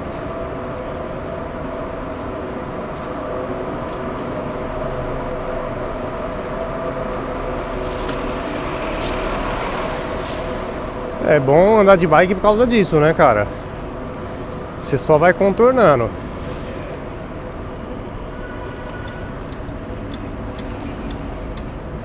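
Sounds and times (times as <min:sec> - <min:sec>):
trucks and vans idling: 0:00.0 - 0:22.0.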